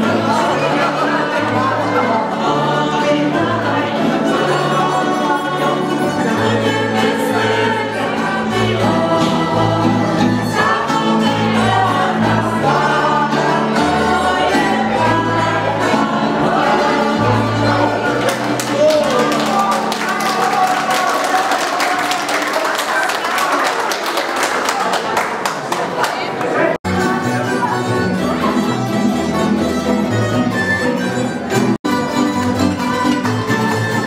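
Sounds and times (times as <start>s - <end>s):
double bass: 0.0s - 19.0s, 26.9s - 34.0s
acoustic band playing dance music: 0.0s - 21.2s, 26.8s - 34.0s
voices singing along: 0.0s - 22.3s.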